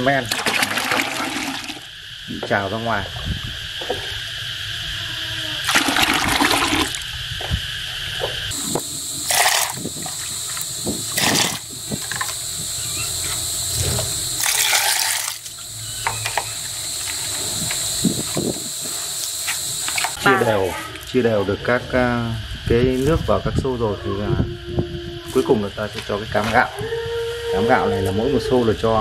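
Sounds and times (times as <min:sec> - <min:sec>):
liquid splashing into buckets: 0:00.2 - 0:01.9, 0:05.6 - 0:07.1, 0:09.2 - 0:12.4, 0:14.4 - 0:15.6.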